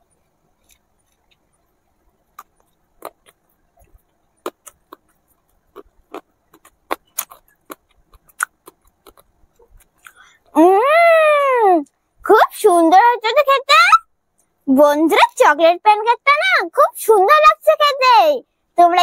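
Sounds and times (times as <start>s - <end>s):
chewing: 0.6s - 10.5s.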